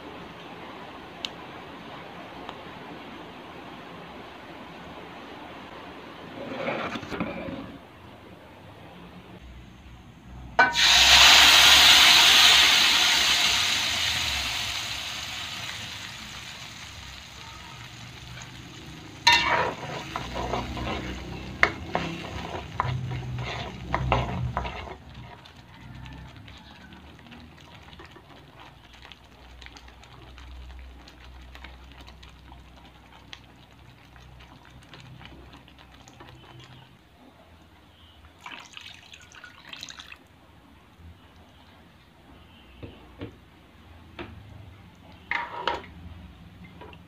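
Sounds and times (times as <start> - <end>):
metal spatula scraping a wok: 6.3 - 7.8, 19.2 - 25.4, 45.2 - 45.8
paste sizzling in oil: 10.6 - 37.0.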